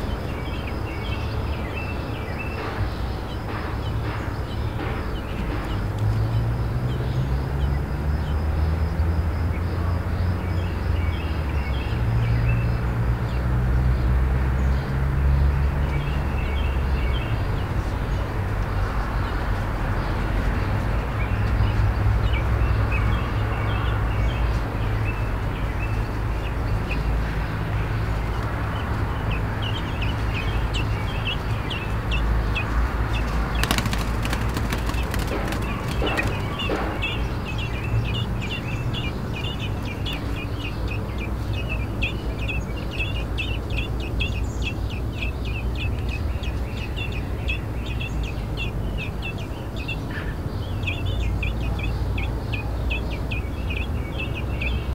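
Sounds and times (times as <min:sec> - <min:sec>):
nestlings begging chirps: 0:21.2 - 0:54.9.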